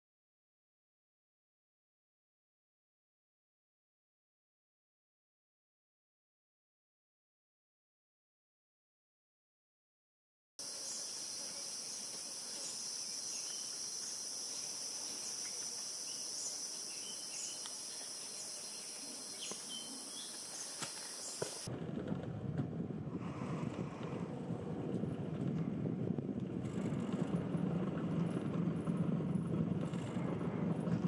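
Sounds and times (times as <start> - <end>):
chorus of forest insects: 10.6 - 21.7.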